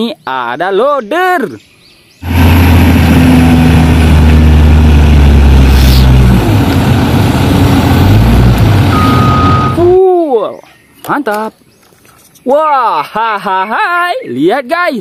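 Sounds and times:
sand dumping into truck: 2.2s - 9.8s
heavy diesel engine running: 2.2s - 9.9s
short steady beep: 8.9s - 9.9s.

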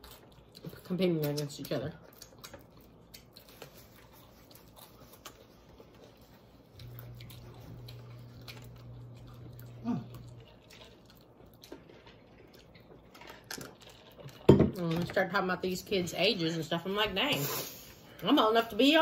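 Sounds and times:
chewing and lip smacking: 0.0s - 14.5s
low steady hum: 0.0s - 19.0s.

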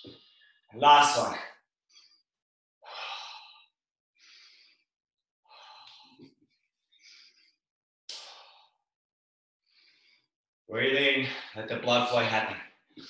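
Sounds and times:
man breathing hard: 1.9s - 4.9s, 5.5s - 8.9s, 9.6s - 10.3s.

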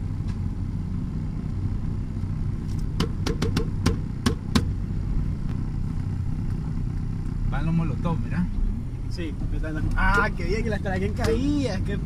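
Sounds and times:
low vehicle rumble: 0.0s - 12.0s
sharp clicks or knocks: 3.0s - 4.7s.

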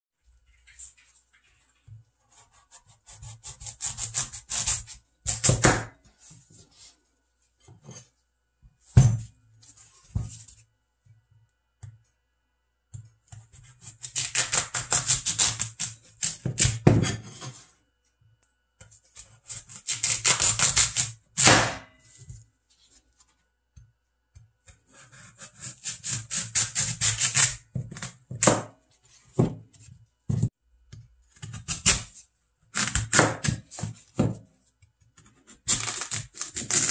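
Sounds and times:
knife sawing through radish: 2.3s - 5.5s, 24.9s - 27.6s, 35.5s - 36.9s.

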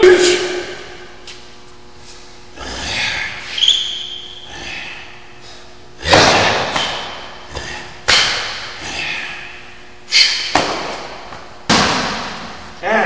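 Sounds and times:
echoing hand slaps: 6.1s - 7.3s, 8.0s - 8.7s, 10.2s - 12.5s.

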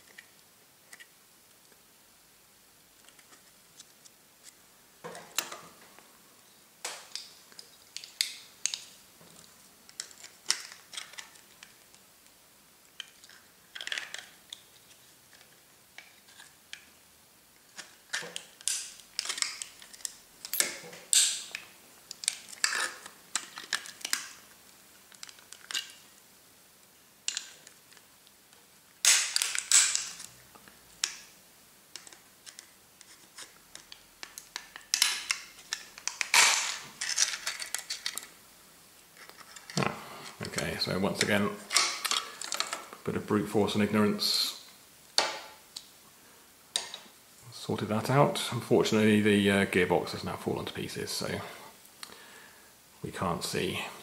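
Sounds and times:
plastic housing cracking apart: 17.7s - 24.4s, 29.0s - 30.3s, 33.7s - 38.3s.

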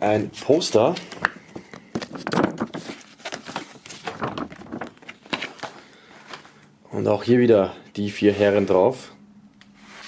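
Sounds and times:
glossy paper rustling and crackling: 0.4s - 5.8s.

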